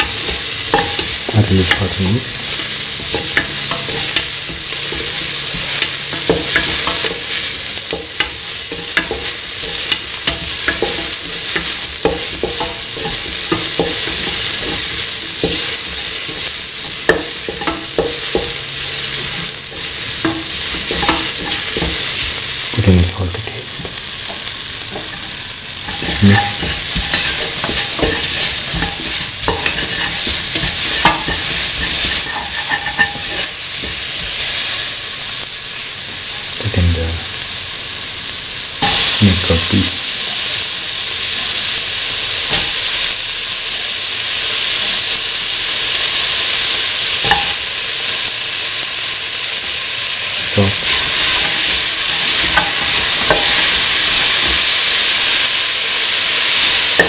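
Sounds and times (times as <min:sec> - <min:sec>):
vegetables sizzling in hot oil: 0:00.0 - 0:57.0
spatula scraping metal pan: 0:25.8 - 0:34.3.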